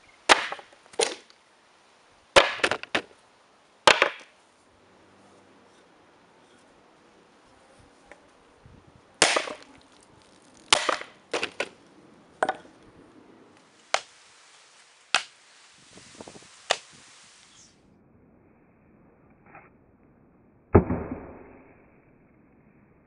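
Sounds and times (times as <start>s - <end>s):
axe chopping coconut: 10.7s - 11.7s.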